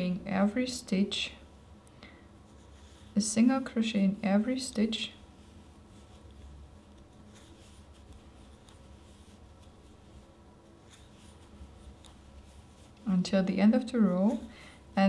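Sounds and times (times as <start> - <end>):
crochet hook pulling yarn: 2.5 - 3.6, 4.4 - 14.6.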